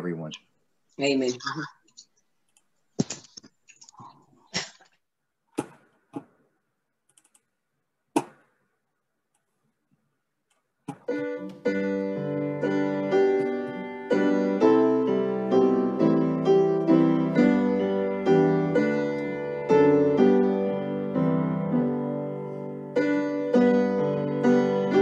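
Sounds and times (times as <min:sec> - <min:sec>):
piano hymn accompaniment: 0:11.0 - 0:25.0.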